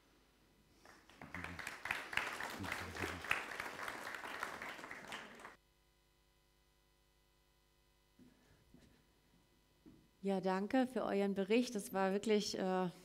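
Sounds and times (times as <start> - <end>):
congregation clapping: 0.8 - 5.6.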